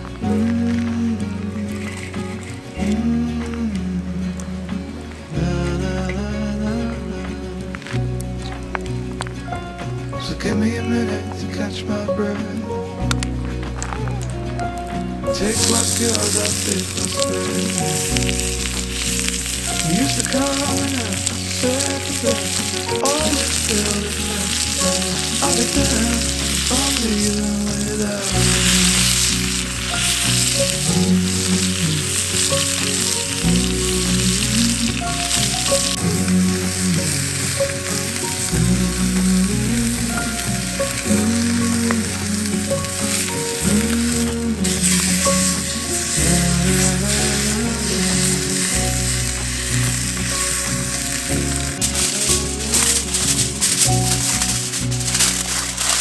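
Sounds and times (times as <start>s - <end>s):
background music with bass line: 0.0s - 56.0s
meat sizzling in a skillet: 15.3s - 56.0s.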